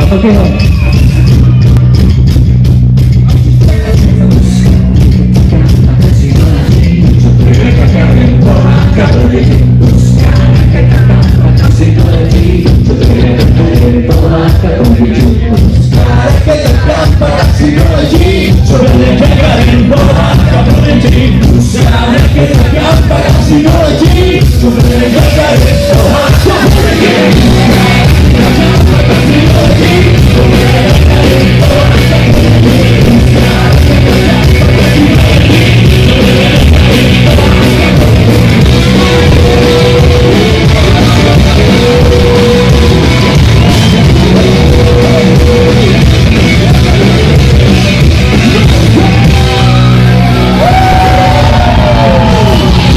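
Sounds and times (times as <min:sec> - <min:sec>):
live rock music: 0:00.0 - 0:52.9
person singing long notes: 0:18.2 - 0:43.0.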